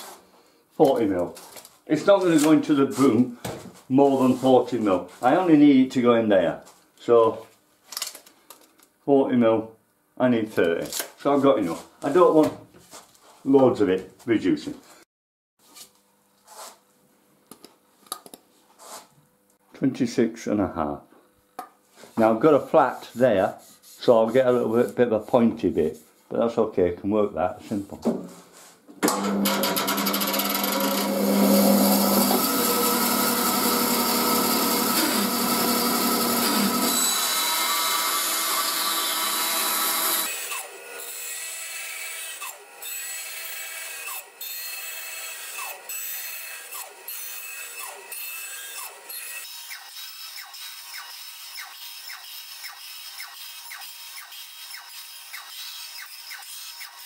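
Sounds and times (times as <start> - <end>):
bandsaw cutting wood: 29.0 - 57.0
wood scratching on saw blade: 29.3 - 57.0.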